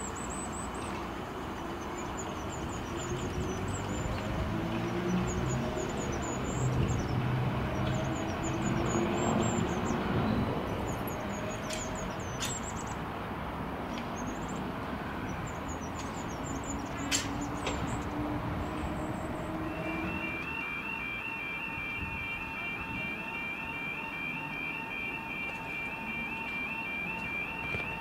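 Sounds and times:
birds chirping: 0.0s - 28.0s
train wheels on rails: 0.7s - 13.0s, 15.4s - 20.9s
electric train motors humming: 17.7s - 28.0s.

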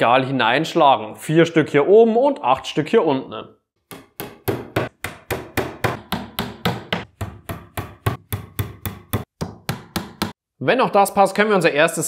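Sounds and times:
hammer tapping wooden dowels: 3.8s - 10.4s.

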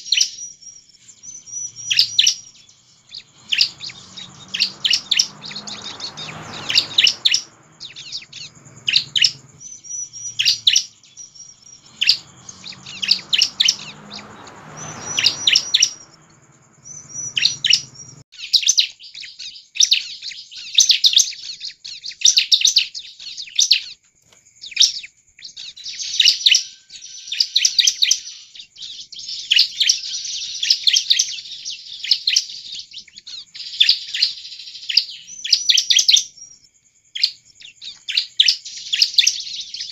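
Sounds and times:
bird chirps and trills: 0.0s - 24.0s, 24.6s - 36.6s, 37.2s - 39.9s
low background rumble: 1.2s - 18.2s.

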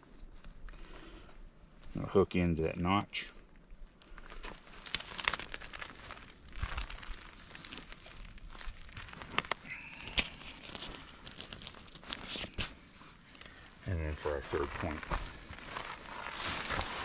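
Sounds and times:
tarp crinkling and rustling: 4.0s - 17.0s.

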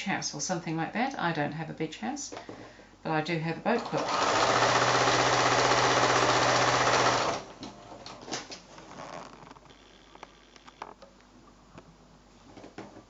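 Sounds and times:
sewing machine stitching: 3.7s - 7.5s.

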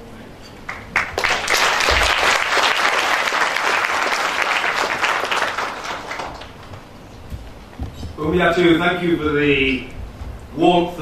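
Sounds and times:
large audience applauding: 0.7s - 6.9s.

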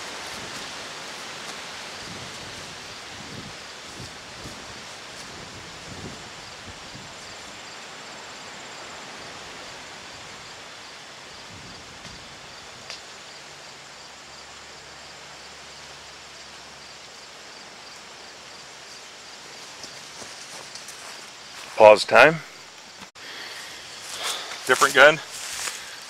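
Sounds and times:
rustling grass: 0.0s - 8.4s, 15.6s - 26.0s
faint insect chirp: 0.0s - 26.0s.

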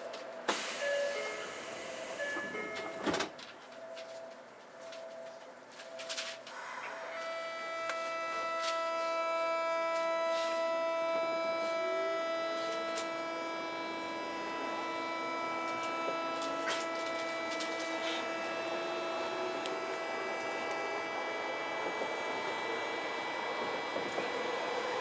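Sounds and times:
train motor controller whine: 0.0s - 5.1s, 5.8s - 25.0s
rising low whine: 6.4s - 25.0s.

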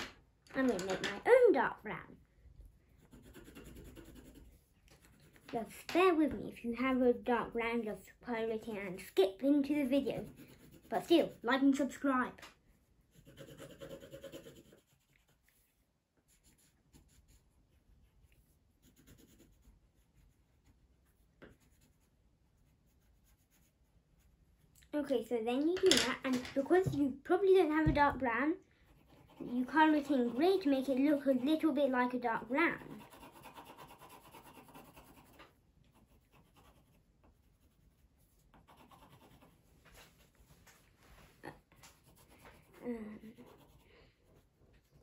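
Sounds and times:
pencil tap: 0.0s - 1.2s
pencil scratching on paper: 2.9s - 7.4s, 8.8s - 12.0s, 12.7s - 24.6s, 28.8s - 40.5s, 41.8s - 45.0s.

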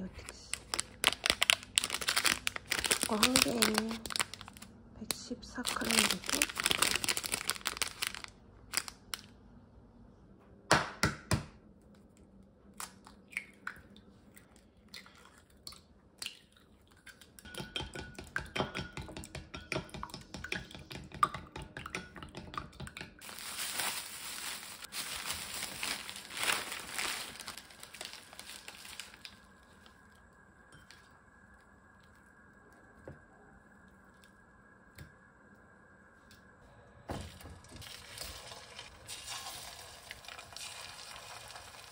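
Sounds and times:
plastic packaging crinkling: 0.1s - 9.3s, 23.2s - 30.0s
faint steady hum: 11.5s - 41.9s.

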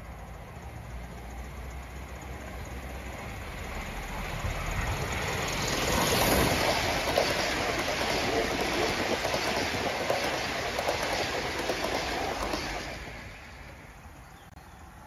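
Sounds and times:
train wheels clicking on track: 0.0s - 14.2s
steam hissing: 3.0s - 14.2s.

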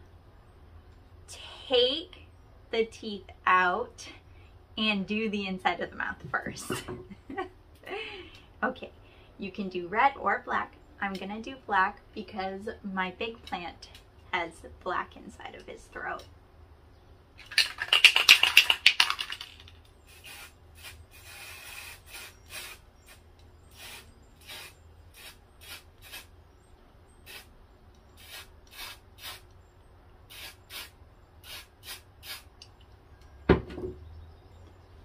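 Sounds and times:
spray can shaken: 17.4s - 23.2s
spray hisses: 20.1s - 26.3s, 27.2s - 27.5s, 28.2s - 29.5s, 30.3s - 32.5s.

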